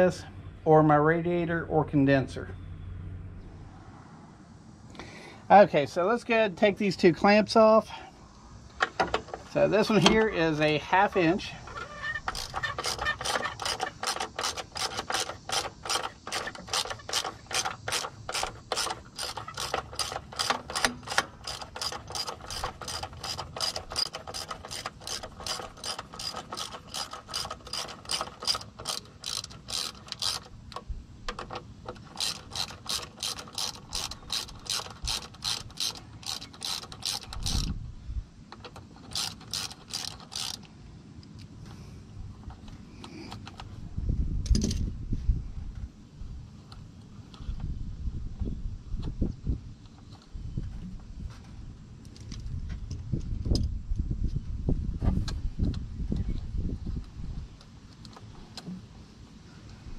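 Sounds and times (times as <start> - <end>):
ratchet wrench clicking: 8.8 - 37.8, 38.6 - 40.7.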